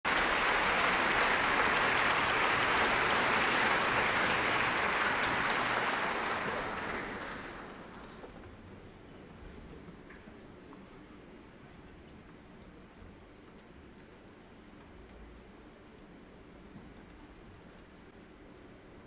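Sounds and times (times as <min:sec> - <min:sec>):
large audience applauding: 0:00.0 - 0:08.3.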